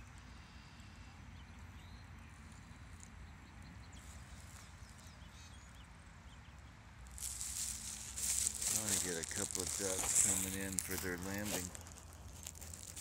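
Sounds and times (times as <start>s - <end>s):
faint bird chirps: 0.3s - 6.4s.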